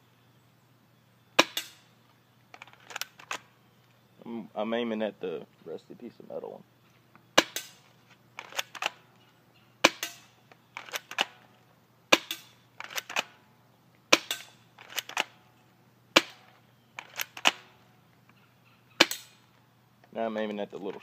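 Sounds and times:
airsoft gun cracks: 1.4s - 1.9s, 7.4s - 7.8s, 8.4s - 9.0s, 9.8s - 11.4s, 12.1s - 13.4s, 14.1s - 15.4s, 16.2s - 17.7s, 19.0s - 19.4s
light recocking clicks: 8.4s - 9.0s, 12.3s - 13.4s, 16.3s - 18.4s.

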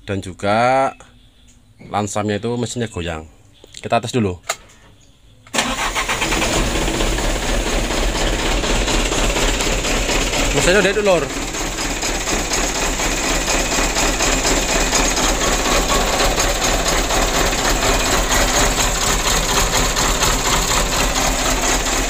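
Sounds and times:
diesel engine idling: 5.6s - 22.0s.

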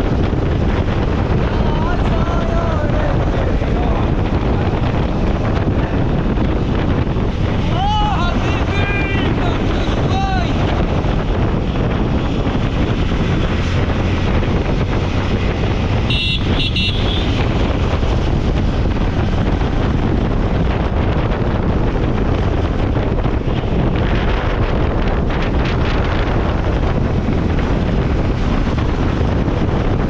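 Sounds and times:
motorcycle engine: 0.0s - 30.0s
wind rushing over microphone: 0.0s - 30.0s
horn toots: 16.0s - 17.6s.

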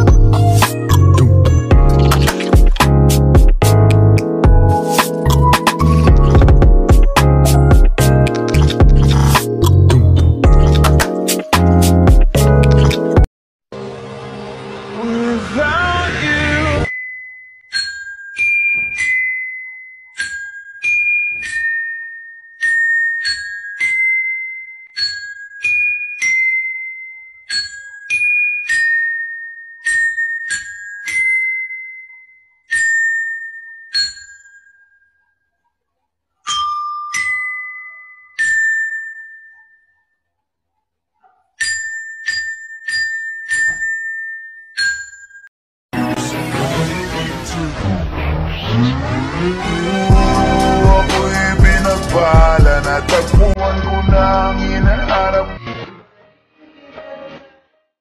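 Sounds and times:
bell-like melody: 0.0s - 12.8s, 16.8s - 35.6s, 36.5s - 40.2s, 41.6s - 45.5s, 49.6s - 53.5s.

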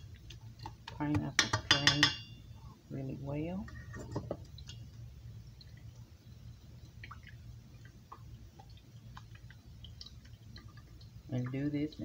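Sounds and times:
faint clicks and squishes: 0.0s - 1.4s, 3.6s - 12.0s
juice dripping into a bowl: 0.0s - 1.4s, 4.2s - 12.0s.

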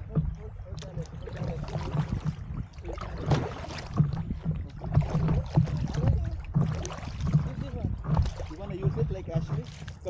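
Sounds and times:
water sloshing against paddle board: 0.0s - 10.0s.

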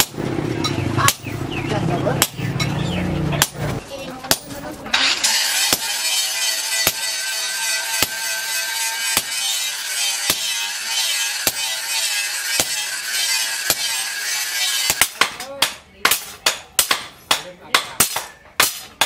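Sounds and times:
hammer striking metal on anvil: 4.3s - 19.0s.

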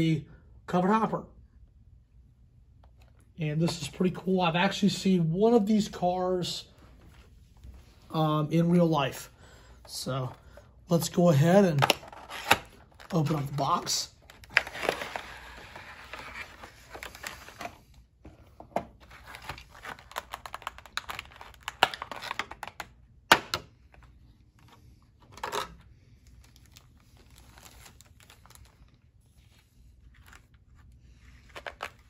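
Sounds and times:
plastic packaging crinkling: 11.7s - 17.8s, 19.0s - 22.9s, 25.2s - 32.0s.

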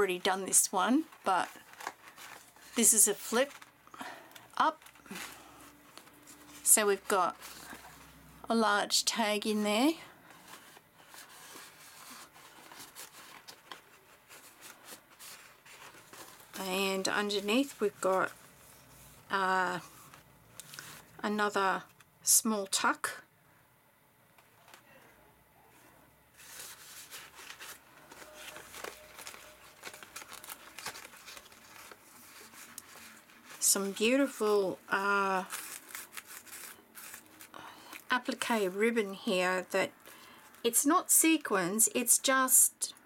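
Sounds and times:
paper rustling and ticking: 0.1s - 8.1s, 10.2s - 18.6s, 26.4s - 39.2s.

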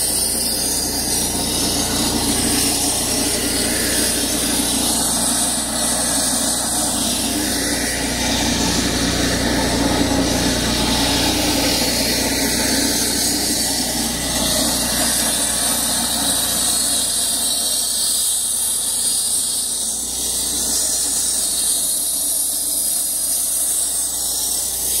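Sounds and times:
concrete saw cutting: 0.0s - 25.0s.

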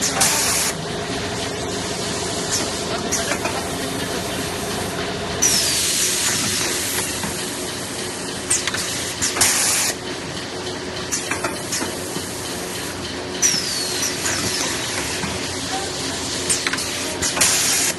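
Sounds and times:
steady machine hum: 0.0s - 17.9s
machine clicks: 5.5s - 9.7s, 10.3s - 14.7s.

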